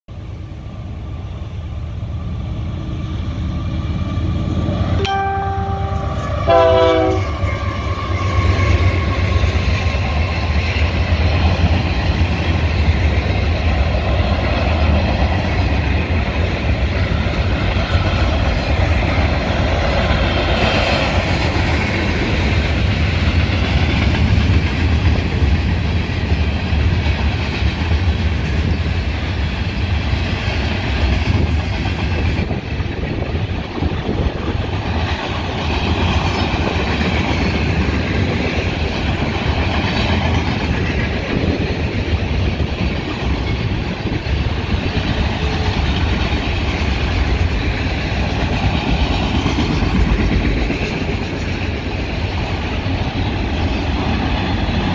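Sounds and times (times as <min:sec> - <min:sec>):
train rumble: 0:00.1 - 0:54.9
train horn blasts: 0:05.0 - 0:07.9.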